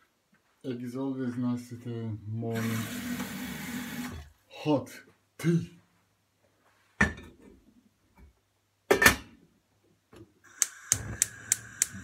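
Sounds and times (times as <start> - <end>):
sharp knocks of kitchen things: 8.9 - 9.3.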